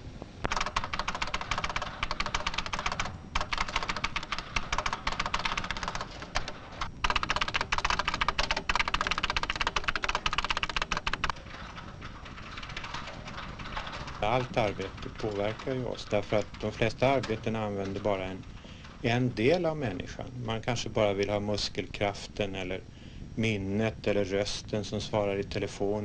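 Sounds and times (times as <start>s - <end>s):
fast typing on keyboard: 0.5s - 20.2s.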